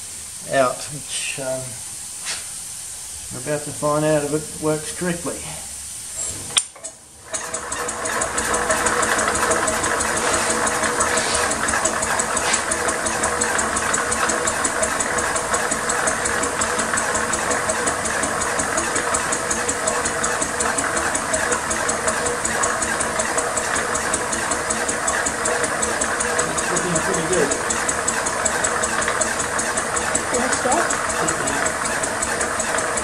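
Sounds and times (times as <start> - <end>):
steam engine exhaust beat: 7.9 - 33.0.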